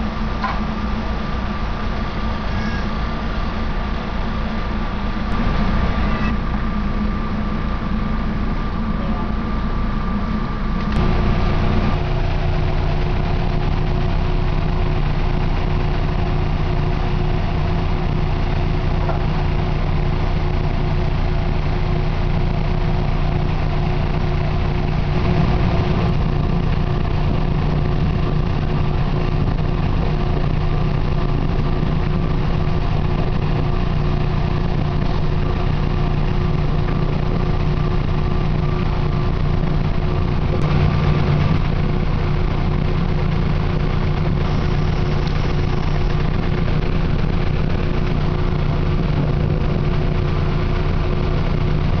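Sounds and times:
train wheels rumbling on rails: 0.0s - 52.0s.

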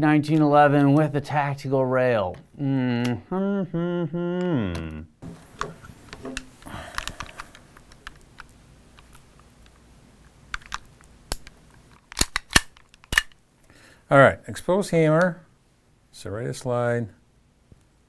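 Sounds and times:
pistol clicks and handling: 10.5s - 13.4s.

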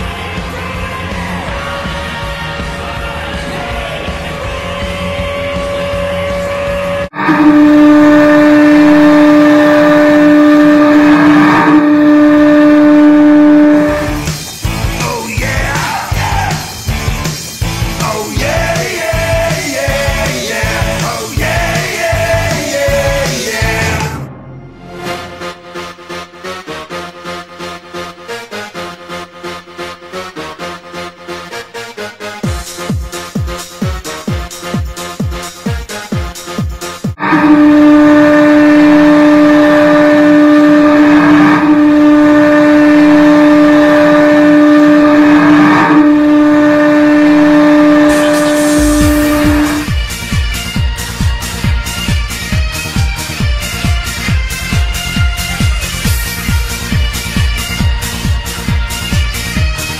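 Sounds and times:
rock music with drum beat: 0.0s - 7.1s, 12.0s - 24.3s, 32.4s - 37.3s, 47.9s - 59.9s
low goal horn blast: 4.6s - 15.0s, 18.8s - 33.3s, 37.2s - 59.9s
person singing: 15.0s - 16.9s, 17.9s - 24.3s.

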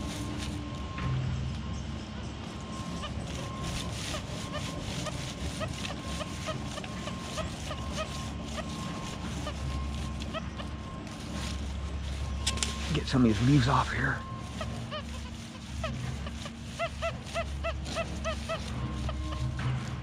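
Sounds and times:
dry leaves rustling and crunching: 0.0s - 20.0s
metal detector tone and chirps: 2.5s - 15.0s.

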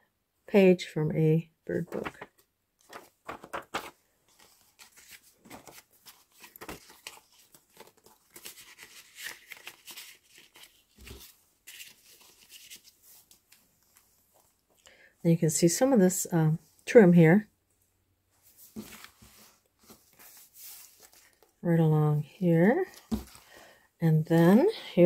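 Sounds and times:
paper rustling and sliding: 1.7s - 14.6s, 18.5s - 21.6s, 22.9s - 23.7s.

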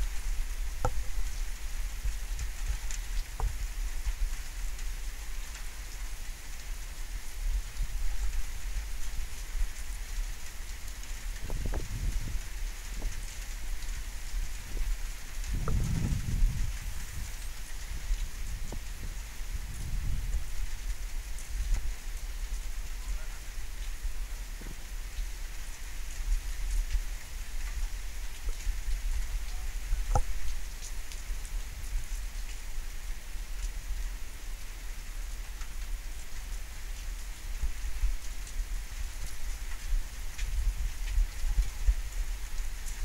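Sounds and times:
rain falling: 0.0s - 43.0s
deep low rumble: 15.4s - 17.5s.

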